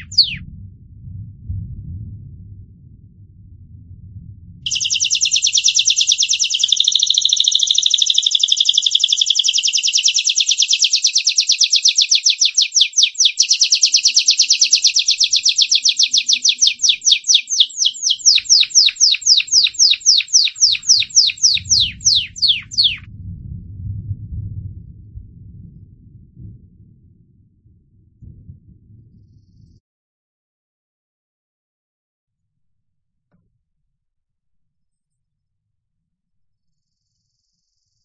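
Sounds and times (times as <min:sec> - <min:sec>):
canary singing trills: 0:00.0 - 0:00.4, 0:04.7 - 0:23.0.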